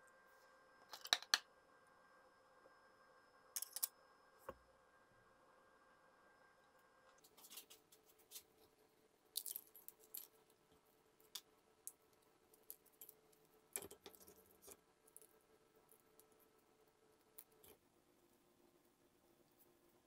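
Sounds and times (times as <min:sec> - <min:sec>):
fortune cookie cracking: 0:09.3 - 0:17.8.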